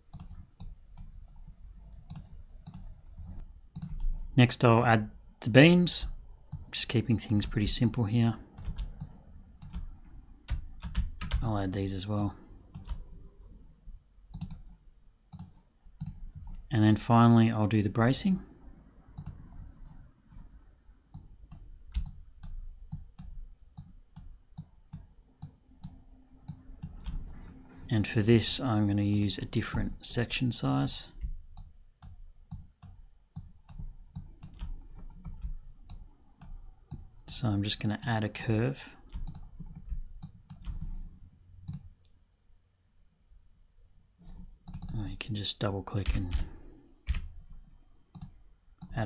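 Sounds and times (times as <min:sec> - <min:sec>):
computer mouse clicking: 0:00.1 - 0:01.1, 0:01.9 - 0:04.9, 0:06.0 - 0:13.1, 0:14.3 - 0:16.6, 0:19.1 - 0:20.5, 0:21.1 - 0:27.3, 0:29.1 - 0:29.7, 0:31.2 - 0:37.3, 0:39.1 - 0:42.2, 0:44.2 - 0:45.0, 0:46.0 - 0:49.0.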